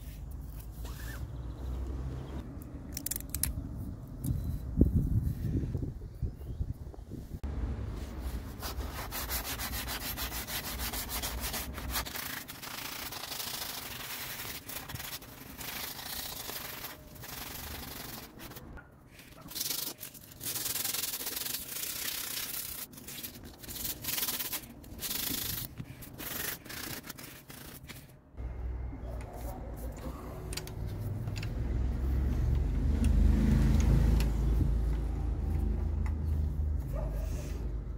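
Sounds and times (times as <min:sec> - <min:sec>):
sandpaper scraping metal tube: 0:08.2 - 0:28.2.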